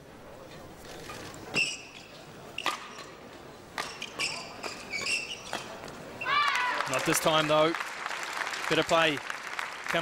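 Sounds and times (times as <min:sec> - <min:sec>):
court shoes squeaking: 0:00.4 - 0:06.4.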